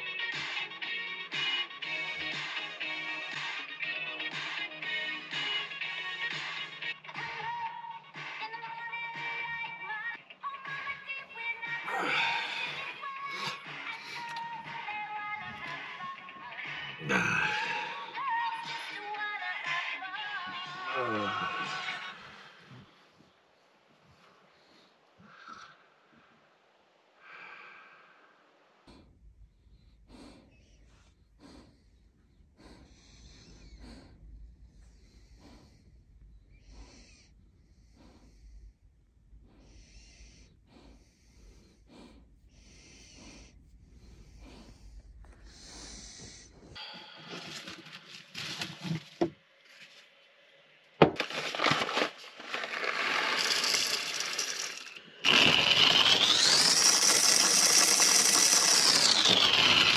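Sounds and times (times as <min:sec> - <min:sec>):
dog breathing wheezily: 0:12.0 - 0:17.0, 0:28.8 - 0:49.3, 0:51.2 - 0:59.9
hand coffee grinder turning: 0:51.2 - 0:59.9
hiss: 0:53.2 - 0:59.9.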